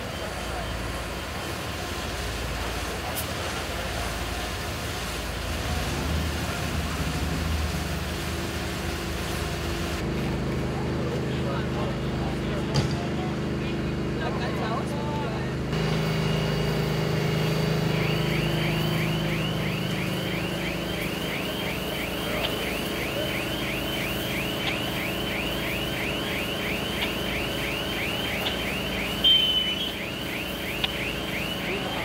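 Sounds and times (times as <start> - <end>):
low engine hum: 3.6 - 32.0
electronic alarm chirping: 15.8 - 32.0.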